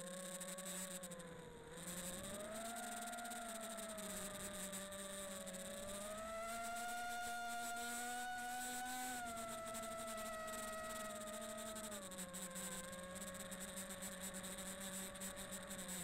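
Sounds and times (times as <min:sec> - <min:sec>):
drone motors whining: 0:00.0 - 0:16.0.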